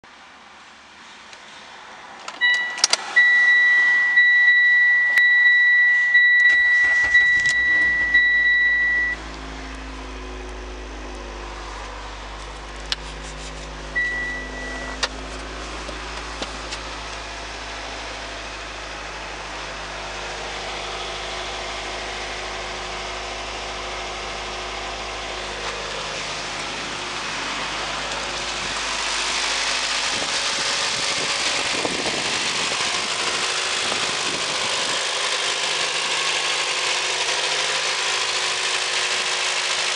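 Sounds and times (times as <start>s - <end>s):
car warning tone: 2.4s - 9.4s, 13.8s - 15.2s
engine idling: 2.4s - 39.9s
engine cranking and starting: 6.4s - 9.2s, 25.6s - 39.9s.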